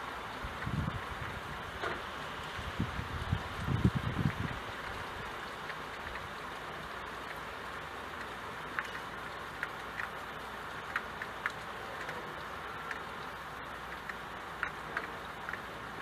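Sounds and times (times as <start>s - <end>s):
rain hissing: 0.0s - 16.0s
raindrops ticking on window glass: 0.0s - 16.0s.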